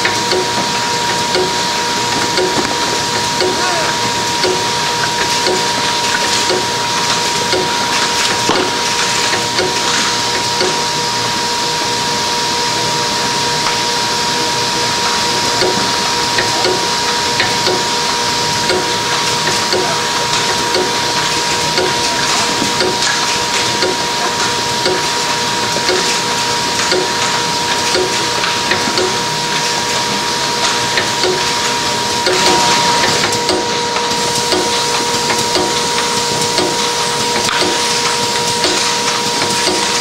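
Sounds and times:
light regular machine ticking: 0.0 - 8.8, 9.4 - 9.9, 10.6 - 10.8, 15.6 - 29.3, 30.9 - 31.6, 34.3 - 40.0
machine humming: 0.0 - 40.0.

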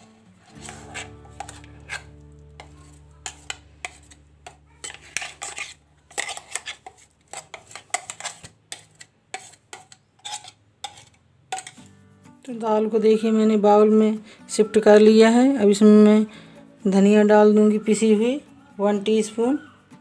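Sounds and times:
spoon scraping and tapping steel jar: 0.4 - 11.9.

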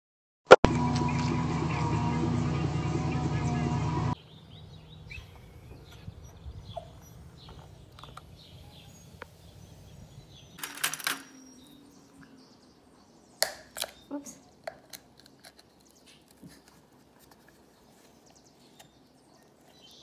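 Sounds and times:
steady low hum: 0.7 - 10.6
birds chirping: 0.7 - 20.0.

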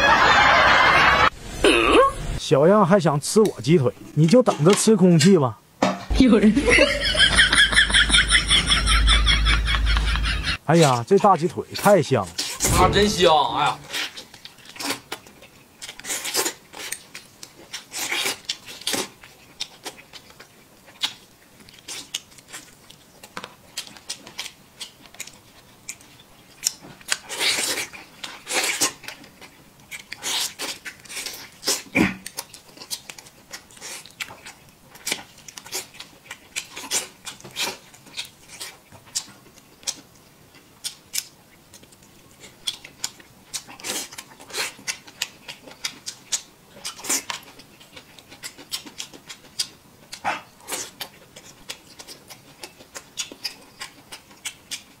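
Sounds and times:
sucking noises: 1.3 - 2.4
man chewing with lip smacks: 13.9 - 55.0.

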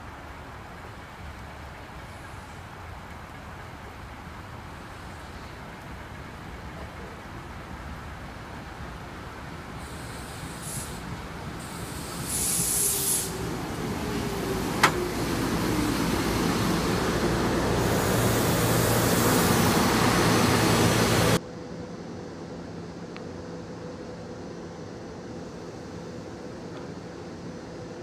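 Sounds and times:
falling whine of train: 0.0 - 28.0
standing train humming: 0.0 - 28.0
train wheels and motors rumbling: 0.0 - 28.0
brief hiss: 9.8 - 13.4.

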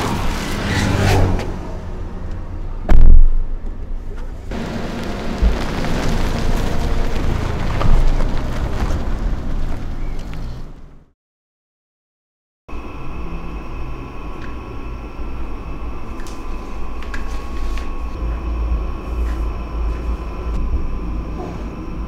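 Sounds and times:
highway traffic rushing: 0.0 - 2.9, 3.5 - 11.1
loud thud: 2.9 - 3.5.

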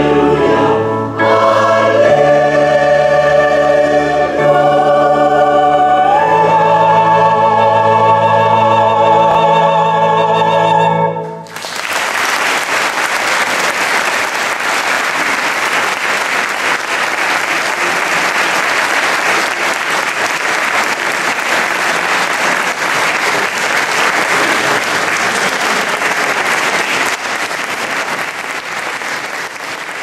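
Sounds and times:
audience applauding: 11.4 - 30.0.

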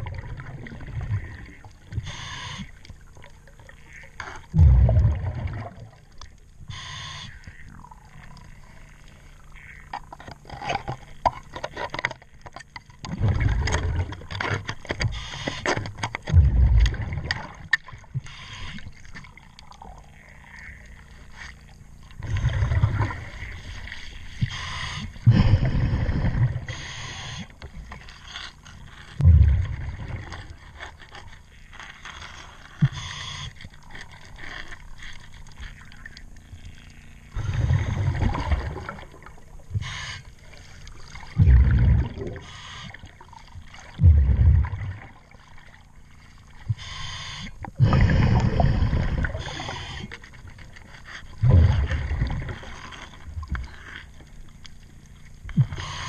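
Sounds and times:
underwater bubbles rumbling: 0.0 - 2.1, 2.9 - 6.7, 12.3 - 15.2, 16.2 - 26.8, 29.0 - 31.5, 35.4 - 39.9, 40.5 - 46.9, 47.6 - 55.9.

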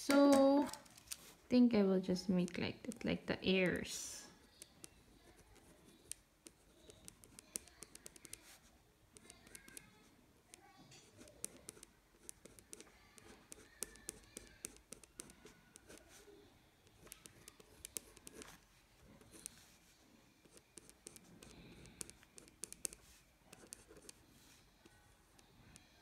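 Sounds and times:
pen scratching on paper: 4.8 - 10.0, 11.0 - 16.3, 16.9 - 18.6, 19.2 - 19.7, 20.4 - 24.2.

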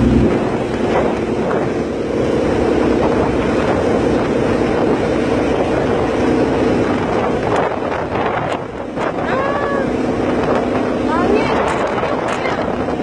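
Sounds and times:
boat engine humming: 0.0 - 13.0
wind buffeting microphone: 0.0 - 13.0.

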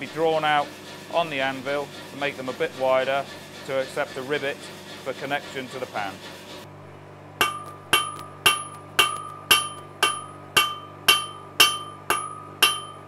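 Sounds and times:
hammer striking steel on anvil: 7.4 - 13.0.

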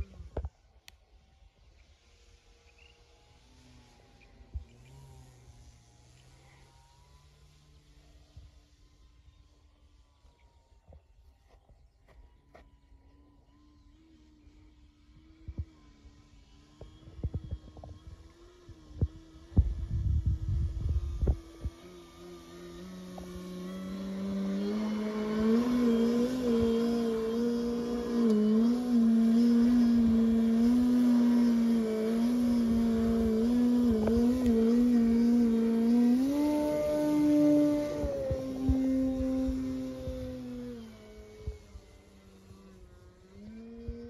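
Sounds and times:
model plane propeller buzzing: 0.0 - 11.9, 12.7 - 44.0
wind buffeting microphone: 17.0 - 22.0, 23.2 - 42.5.

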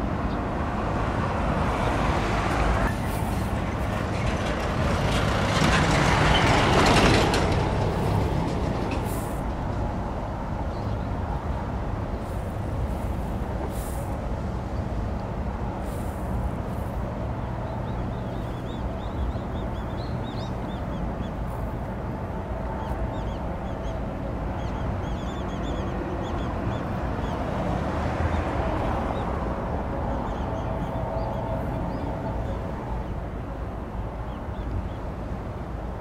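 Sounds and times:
ship diesel engine drone: 2.0 - 27.6
birds chirping: 12.2 - 35.2.

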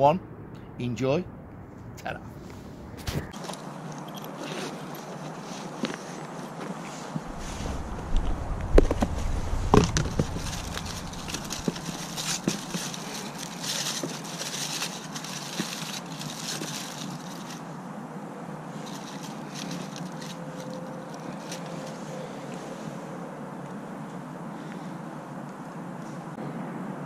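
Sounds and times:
aluminium foil crinkling: 9.9 - 17.7, 18.7 - 22.3.

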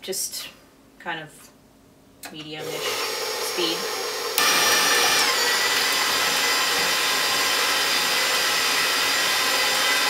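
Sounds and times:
stand mixer motor whine: 2.6 - 10.0.

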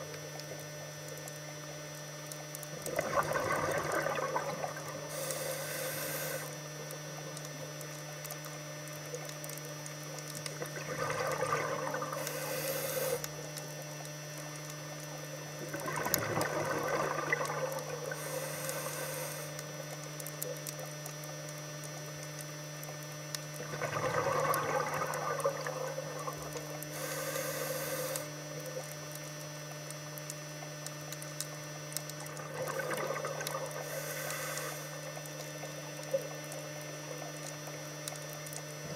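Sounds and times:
steady low hum: 0.0 - 38.9
bubbling exhale underwater: 2.7 - 7.8, 10.4 - 14.2, 15.2 - 19.8, 23.5 - 29.1, 31.6 - 38.9
regulator inhalation hiss: 5.1 - 6.6, 12.2 - 13.2, 18.1 - 19.6, 26.9 - 28.4, 33.8 - 35.0.

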